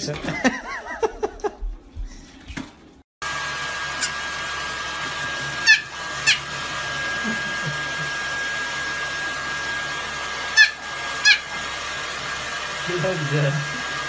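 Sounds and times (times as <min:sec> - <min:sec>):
hair dryer whirring: 0:03.2 - 0:14.0
puppy yapping: 0:05.6 - 0:06.5, 0:10.5 - 0:11.5.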